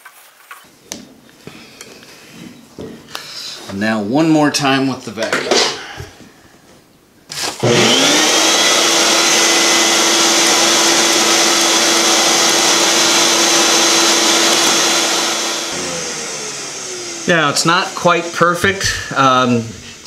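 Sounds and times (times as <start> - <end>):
shop vac motor running: 7.3 - 20.0.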